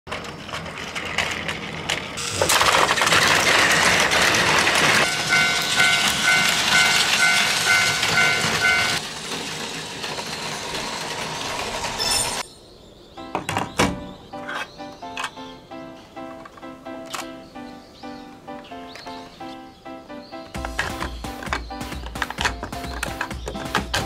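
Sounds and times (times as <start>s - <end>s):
toy trains rattling on plastic track: 0.1s - 12.4s
electronic warning bell ringing: 5.0s - 9.0s.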